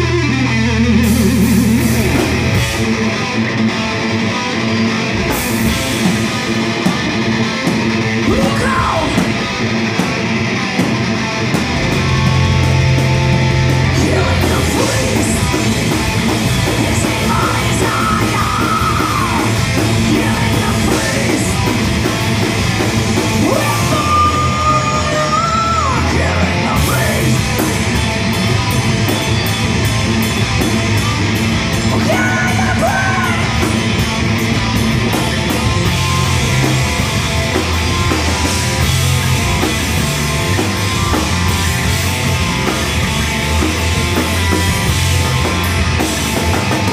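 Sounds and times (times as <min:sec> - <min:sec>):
rock band playing: 0:00.0 - 0:46.9
singer shouting vocals: 0:08.2 - 0:09.5, 0:13.9 - 0:15.5, 0:16.8 - 0:21.6, 0:23.3 - 0:27.6, 0:31.9 - 0:33.8.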